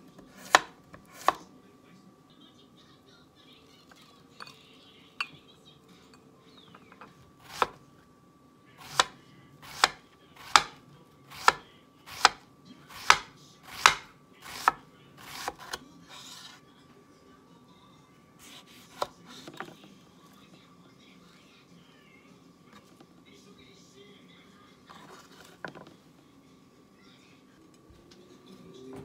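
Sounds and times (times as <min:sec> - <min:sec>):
knife chopping on wooden board: 0:00.2 - 0:01.4, 0:07.4 - 0:07.8, 0:08.8 - 0:15.8.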